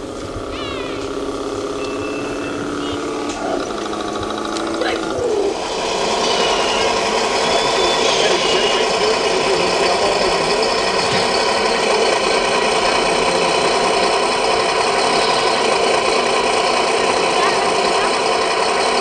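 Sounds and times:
model tractor rattling hum: 0.0s - 19.0s.

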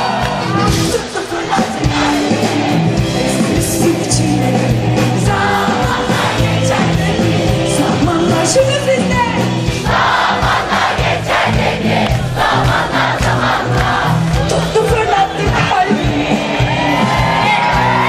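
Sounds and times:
person singing: 0.0s - 9.4s
crowd noise: 0.0s - 18.0s
live pop band with drums: 0.0s - 18.0s.

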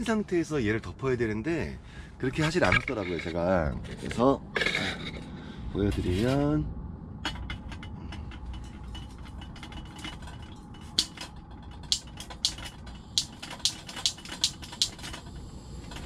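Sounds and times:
gas stove igniter clicking: 11.9s - 15.3s.

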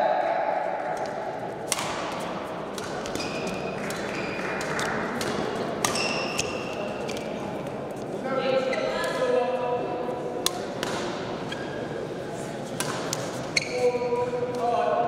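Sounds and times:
racket hitting shuttlecock: 1.0s - 7.4s, 10.4s - 11.4s, 12.7s - 13.4s
shoes squeaking on court floor: 2.0s - 7.4s, 11.0s - 14.4s.

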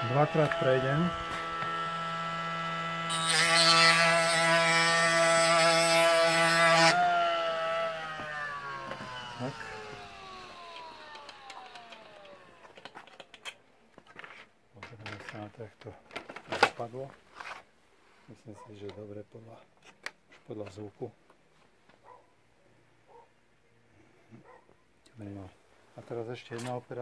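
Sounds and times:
motor winding down: 0.0s - 3.3s, 6.8s - 13.0s
sharpener motor humming: 0.1s - 4.2s, 6.8s - 12.7s.

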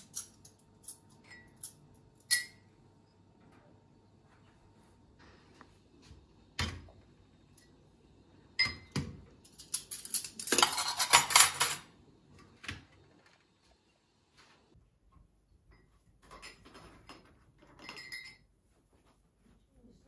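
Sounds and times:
dishes and cutlery clinking: 0.0s - 2.7s, 8.6s - 11.9s, 15.7s - 18.5s.

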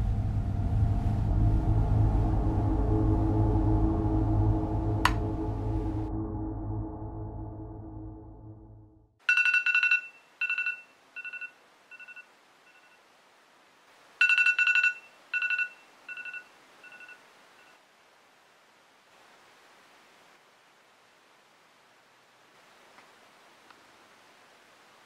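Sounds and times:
electronic telephone ringing: 9.2s - 13.0s, 14.2s - 17.8s.

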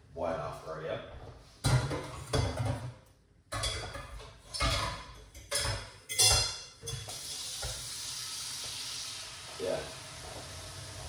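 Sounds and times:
dishes and utensils clattering: 1.6s - 7.8s
steady hiss: 7.0s - 11.0s.

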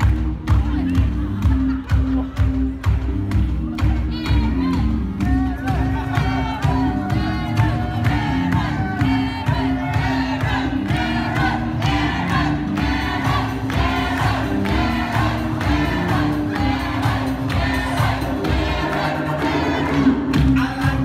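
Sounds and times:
bass line: 0.0s - 21.0s
group of voices singing: 4.4s - 21.0s.

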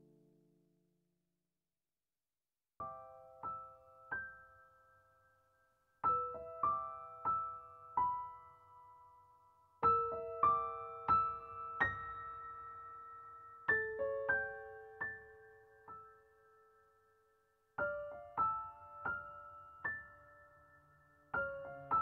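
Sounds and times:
soft piano music: 2.8s - 22.0s.

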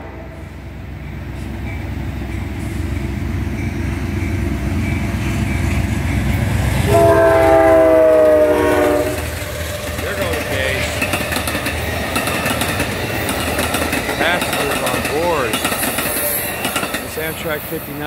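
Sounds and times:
locomotive horn chord: 0.0s - 0.6s, 6.8s - 9.6s
diesel locomotive rumble: 0.0s - 18.0s.

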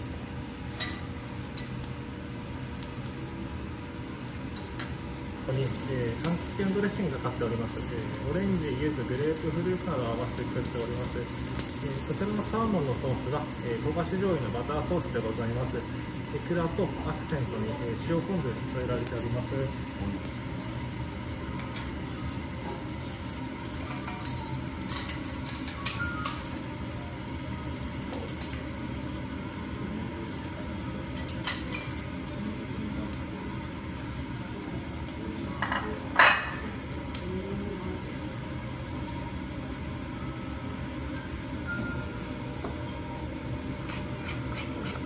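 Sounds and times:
restaurant background hum: 0.0s - 45.0s
dishes and utensils clinking: 35.6s - 36.7s.

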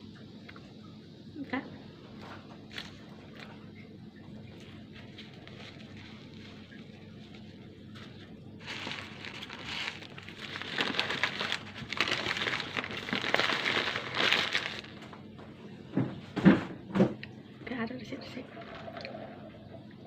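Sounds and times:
paper wrapper crumpling: 2.7s - 3.5s, 4.5s - 15.2s.

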